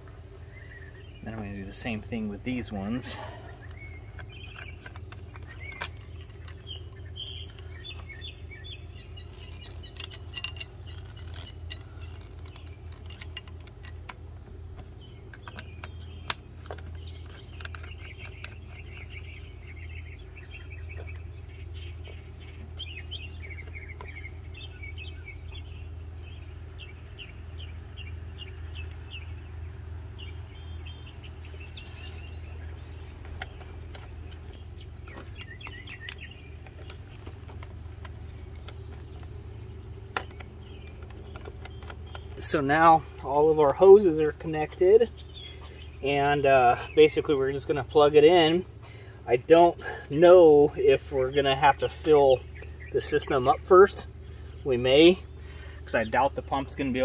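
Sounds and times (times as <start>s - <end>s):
small birds chirping: 0.0s - 57.0s
steady low hum: 0.0s - 57.0s
plastic hose fittings clicking: 3.6s - 6.6s, 9.2s - 19.0s, 40.1s - 42.6s.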